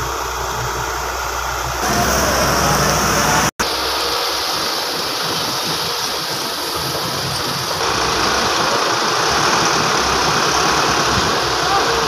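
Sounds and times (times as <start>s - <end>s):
diesel engines running: 0.0s - 12.0s.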